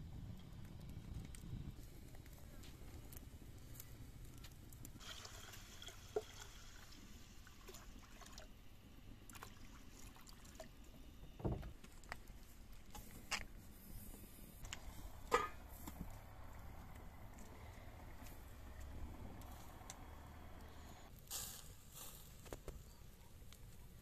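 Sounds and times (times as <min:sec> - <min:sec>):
water pouring into metal pot: 0:05.0 - 0:08.5.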